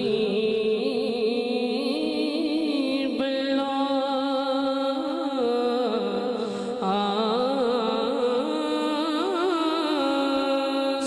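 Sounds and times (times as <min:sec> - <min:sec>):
man singing into a microphone: 0:00.0 - 0:11.0.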